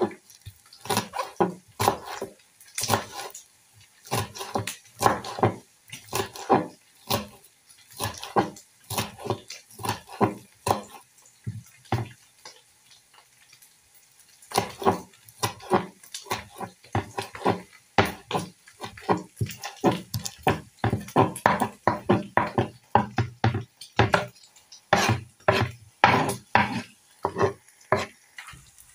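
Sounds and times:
knife chopping on wooden board: 0:00.8 - 0:03.3, 0:04.1 - 0:07.4, 0:08.0 - 0:12.1, 0:14.5 - 0:24.3, 0:24.9 - 0:28.1.

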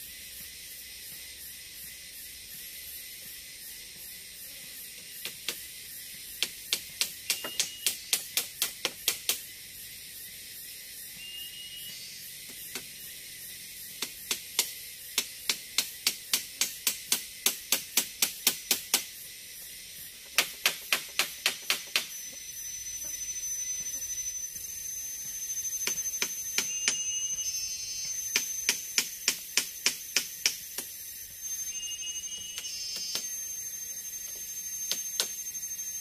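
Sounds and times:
high-pitched whine: 0:07.0 - 0:08.5, 0:09.2 - 0:15.3, 0:21.2 - 0:36.0.

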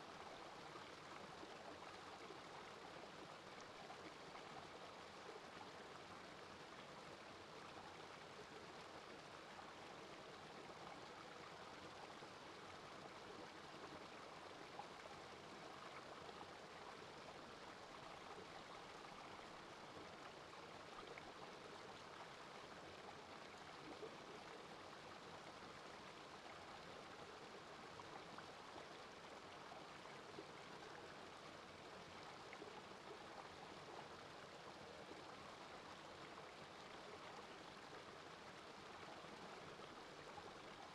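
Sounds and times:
brook babbling over stones: 0:00.0 - 0:40.9.

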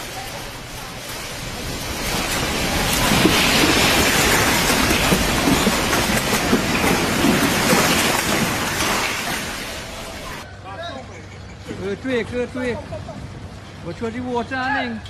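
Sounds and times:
shelving and goods rattling: 0:00.0 - 0:10.5.

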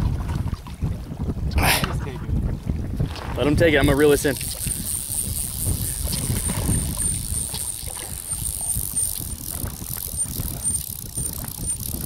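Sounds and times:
wind buffeting microphone: 0:00.0 - 0:12.0
faint ticks: 0:04.4 - 0:12.0.

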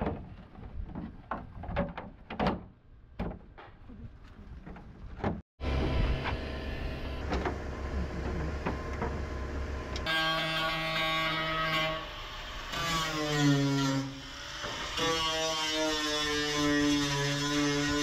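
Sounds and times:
steady low rumble: 0:04.0 - 0:10.1.

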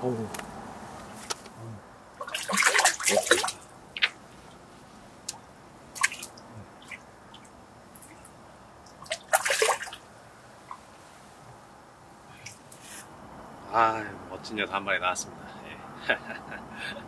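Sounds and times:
fish splashing in water: 0:02.2 - 0:04.2, 0:05.9 - 0:08.3, 0:08.9 - 0:10.0.

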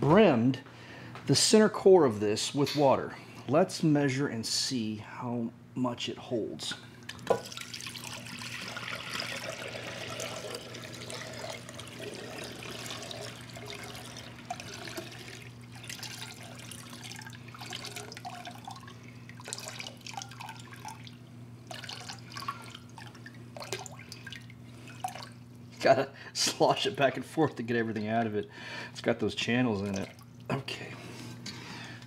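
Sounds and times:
water dripping: 0:07.0 - 0:25.6, 0:29.7 - 0:30.5
water pouring into a glass jug: 0:07.1 - 0:25.5, 0:29.5 - 0:30.5.

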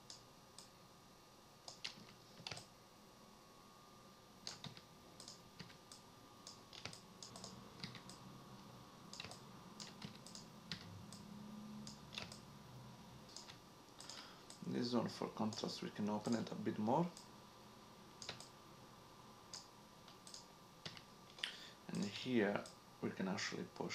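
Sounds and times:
faint low hum: 0:00.0 - 0:23.9
computer keyboard and mouse clicks: 0:01.7 - 0:02.7, 0:04.4 - 0:08.2, 0:09.1 - 0:12.4, 0:13.3 - 0:14.6, 0:18.2 - 0:18.5, 0:19.5 - 0:21.5.

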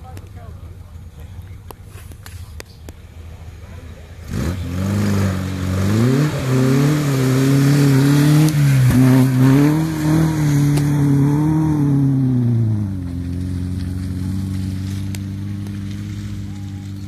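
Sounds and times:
car engine revving hard: 0:04.2 - 0:17.0.

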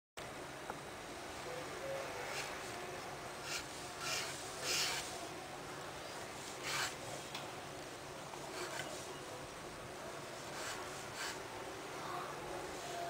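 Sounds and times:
pen nib scratching paper: 0:03.4 - 0:05.1, 0:06.6 - 0:07.0, 0:08.5 - 0:08.9, 0:10.5 - 0:11.4.

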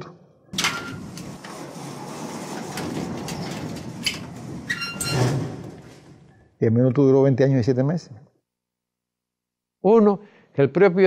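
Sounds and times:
metal door clanking: 0:00.6 - 0:06.3
door grinding slide: 0:00.6 - 0:06.4.

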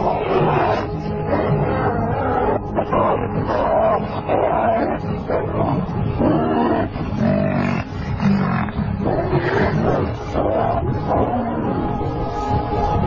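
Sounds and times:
lions roaring and growling: 0:00.0 - 0:11.9
buffalo bellowing: 0:00.1 - 0:11.3.

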